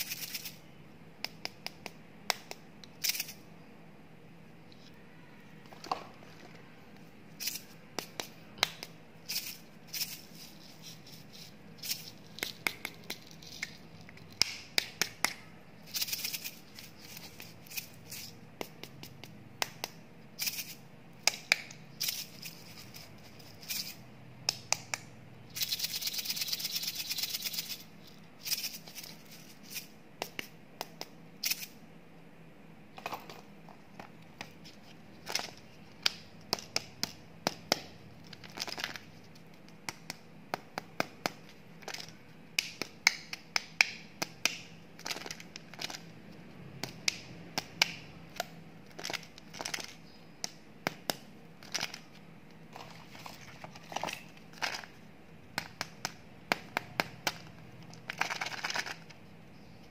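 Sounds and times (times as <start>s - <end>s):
fingernails clicking on plastic packaging: 55.6s - 59.2s.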